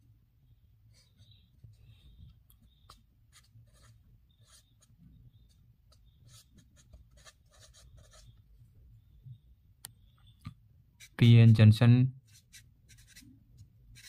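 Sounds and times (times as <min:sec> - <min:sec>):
marker scratching on paper: 0:00.9 - 0:08.4, 0:11.0 - 0:11.6, 0:12.2 - 0:14.0.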